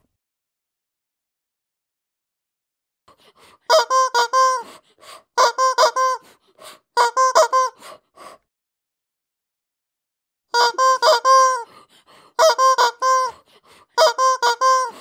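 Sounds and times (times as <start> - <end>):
rubber chicken toy squeaking: 3.7 - 4.8, 5.4 - 6.4, 7.0 - 7.8, 10.5 - 11.7, 12.4 - 13.4, 14.0 - 15.0.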